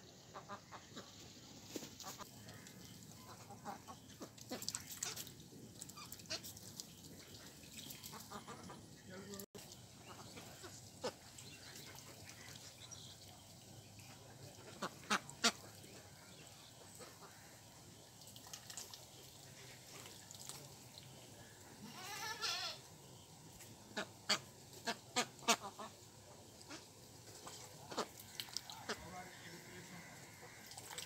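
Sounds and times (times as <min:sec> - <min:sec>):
duck bills clicking and splashing: 0:01.8 - 0:08.7, 0:18.2 - 0:20.9, 0:26.7 - 0:29.0, 0:30.4 - 0:31.0
duck quacking: 0:14.7 - 0:15.8, 0:23.9 - 0:26.0, 0:26.7 - 0:29.2.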